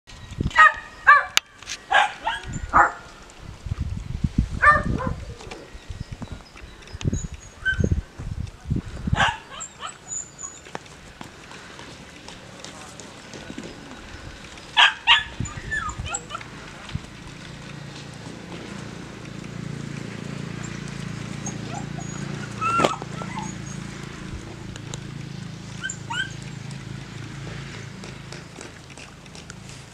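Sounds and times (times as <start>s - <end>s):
young dog yipping: 0.5s - 3.1s, 4.6s - 5.6s, 7.6s - 7.9s, 9.1s - 10.6s, 14.8s - 16.5s, 21.4s - 23.8s, 25.8s - 26.4s.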